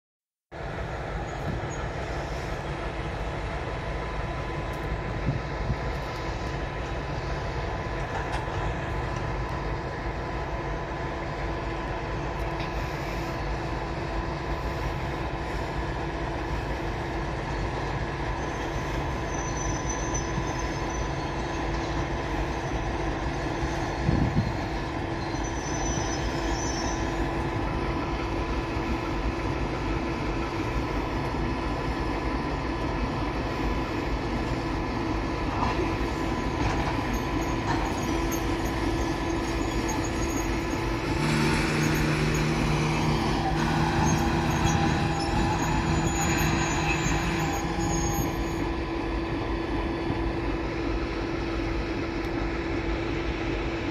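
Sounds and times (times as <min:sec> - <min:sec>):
deep steady engine hum: 0:00.5 - 0:19.7, 0:20.5 - 0:53.9
diesel locomotive engine running: 0:00.5 - 0:53.9
train wheels rumbling on rails: 0:00.5 - 0:53.9
faint high wheel squeal: 0:01.2 - 0:02.9, 0:11.6 - 0:31.2, 0:35.5 - 0:50.4.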